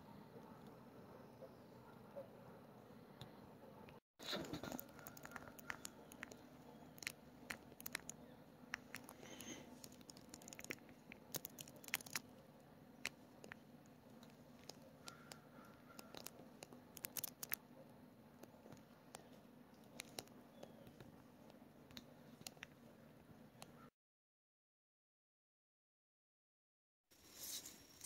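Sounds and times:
faint clicks and rustles: 4.2s - 17.6s.

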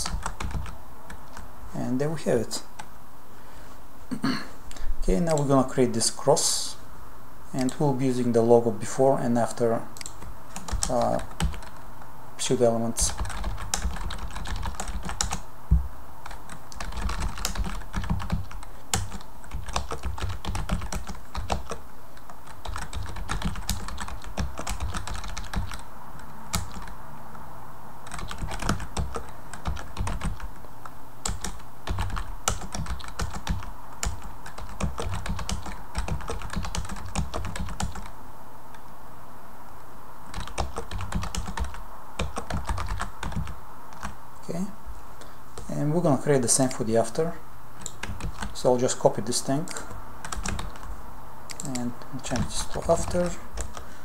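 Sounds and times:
keyboard typing: 0.0s - 1.4s, 10.0s - 11.8s, 13.0s - 15.4s, 16.2s - 27.0s, 28.0s - 30.6s, 31.2s - 38.1s, 40.3s - 44.2s, 47.8s - 48.6s, 49.7s - 50.9s, 51.5s - 53.9s.

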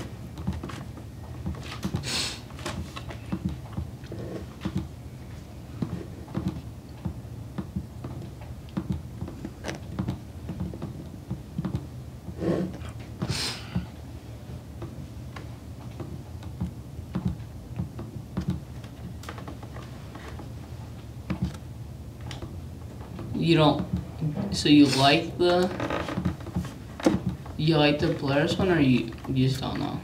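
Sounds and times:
low room hum: 0.0s - 30.0s.

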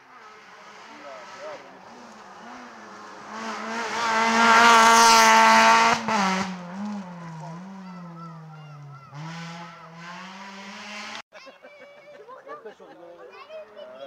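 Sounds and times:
rally car passing at full throttle: 0.0s - 11.2s.

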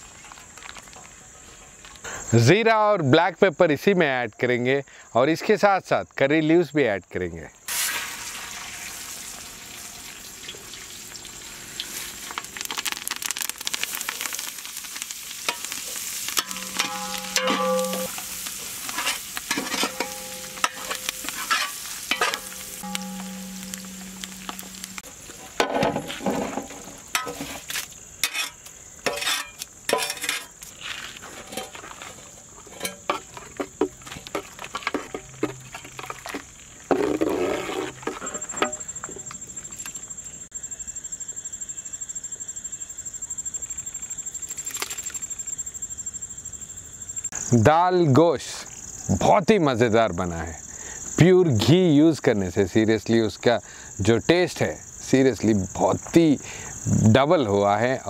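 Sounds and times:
spices sizzling and popping in oil: 7.7s - 30.8s
spoon clinking in metal pan: 16.4s - 18.4s, 19.0s - 25.0s.

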